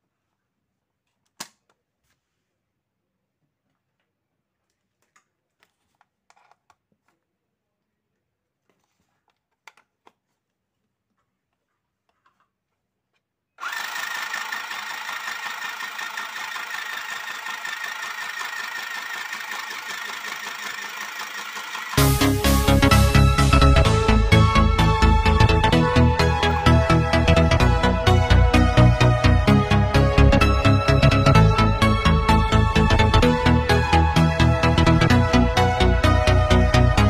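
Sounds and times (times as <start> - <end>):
sewing machine running: 13.6 - 24.0
electronic music with heavy bass: 22.0 - 37.0.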